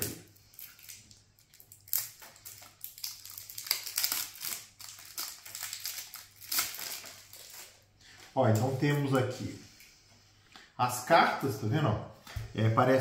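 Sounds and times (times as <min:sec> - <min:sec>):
plastic shrink-wrap crinkling: 0:00.0 - 0:09.4.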